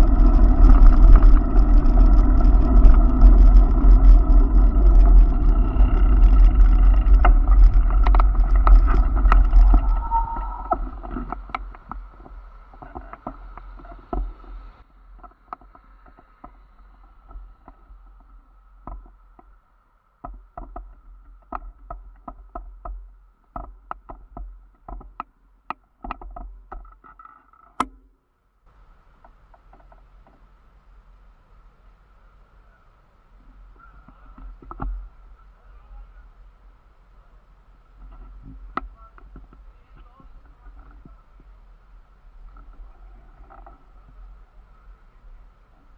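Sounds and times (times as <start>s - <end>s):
faint steady hum: 0.0s - 26.9s, 27.9s - 45.9s
wind and bicycle rolling noise: 0.0s - 27.8s, 28.4s - 45.9s
irregular clicks and ticks: 0.6s - 10.1s.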